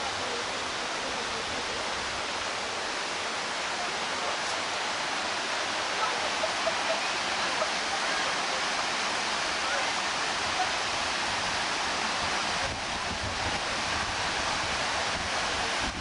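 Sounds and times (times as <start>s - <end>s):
waterfall rushing: 0.0s - 16.0s.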